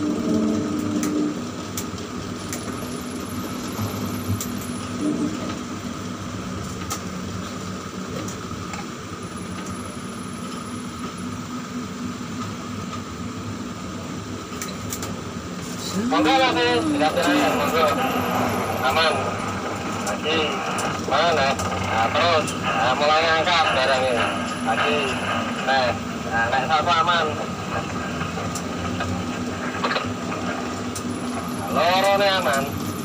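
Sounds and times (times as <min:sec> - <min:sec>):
crane machinery hum: 0:00.0 - 0:33.0
faint high whine: 0:15.6 - 0:33.0.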